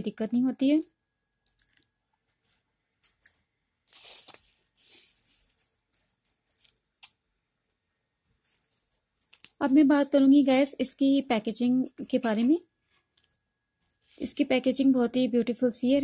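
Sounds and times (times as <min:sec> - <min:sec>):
plastic sachets crinkling: 0:03.9 - 0:06.8.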